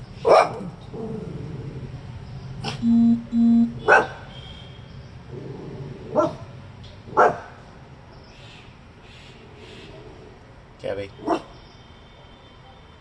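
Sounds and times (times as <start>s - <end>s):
short beep tone: 2.8s - 3.9s
small dog barking: 3.8s - 4.2s, 7.2s - 7.5s.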